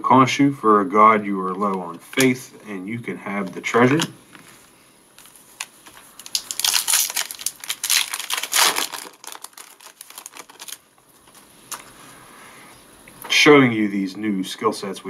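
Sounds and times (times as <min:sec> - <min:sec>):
foil wrapper tearing and crinkling: 0:05.2 - 0:11.8.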